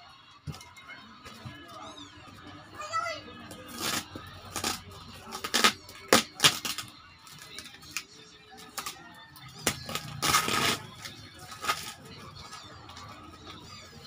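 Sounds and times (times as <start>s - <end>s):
packing tape ripping off a box: 3.7s - 6.9s, 9.6s - 12.0s.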